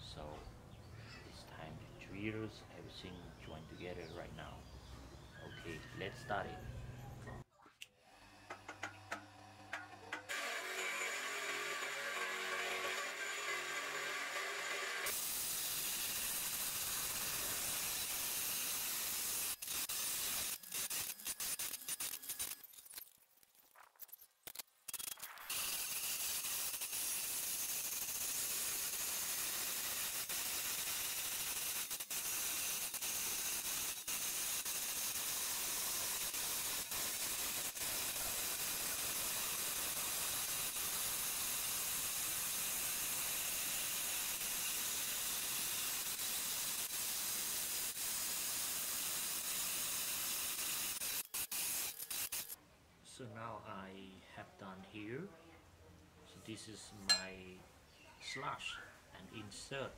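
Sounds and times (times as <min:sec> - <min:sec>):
grinding wheel on steel: 0:08.6 - 0:22.8, 0:25.2 - 0:52.6.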